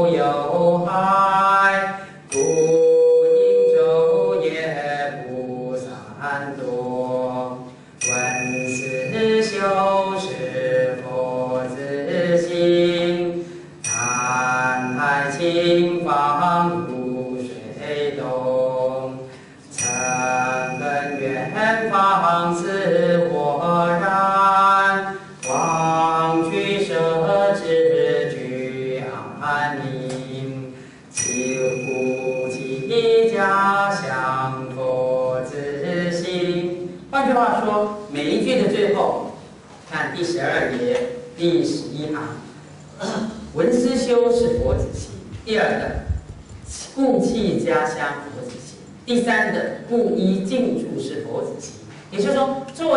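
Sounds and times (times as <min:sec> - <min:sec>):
man chanting: 0:00.0 - 0:19.3, 0:20.2 - 0:52.9
high steady ringing tone: 0:01.8 - 0:05.4, 0:08.0 - 0:18.9, 0:19.6 - 0:36.7.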